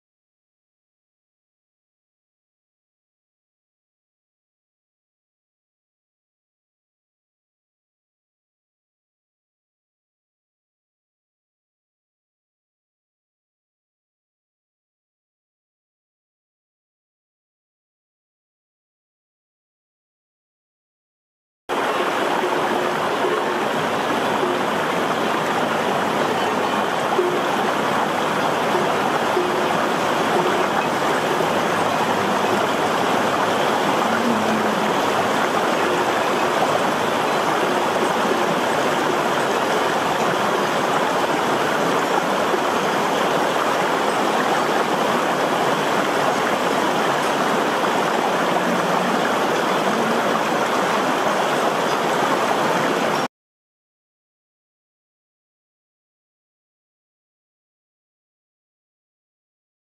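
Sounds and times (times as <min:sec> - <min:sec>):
stream rushing over stones: 0:21.7 - 0:53.3.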